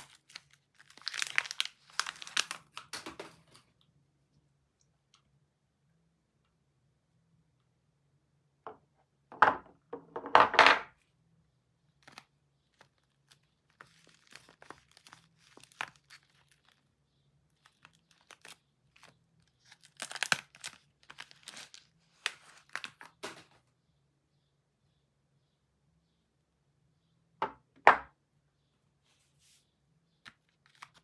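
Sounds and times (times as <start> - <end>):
wrapper crinkling and tearing: 0.0 - 3.6, 12.0 - 16.9, 17.6 - 23.5.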